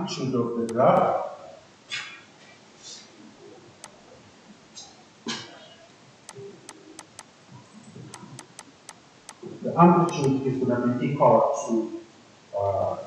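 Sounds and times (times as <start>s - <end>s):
stylus tapping on touchscreen: 6.7s - 7.3s, 8.1s - 8.7s.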